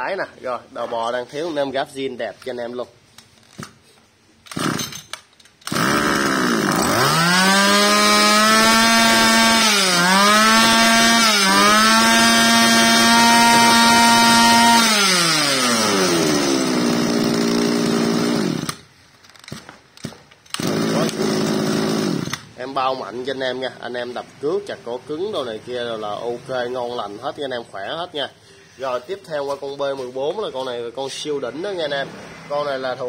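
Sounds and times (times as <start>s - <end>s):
brush cutter engine revving: 4.5s - 5.0s, 5.6s - 18.9s, 20.0s - 22.6s.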